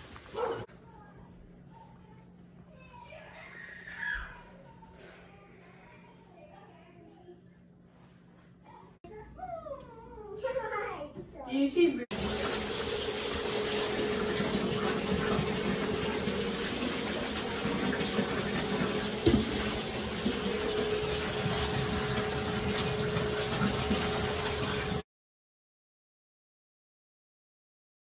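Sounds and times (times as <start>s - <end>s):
tap running into bathtub: 12.1s - 25.0s.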